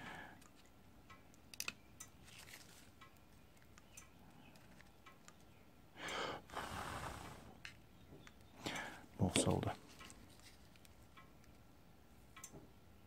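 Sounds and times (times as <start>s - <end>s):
person breathing out hard: 0.0s - 0.4s, 6.0s - 7.6s
faint clicks: 0.3s - 6.2s, 12.3s - 12.7s.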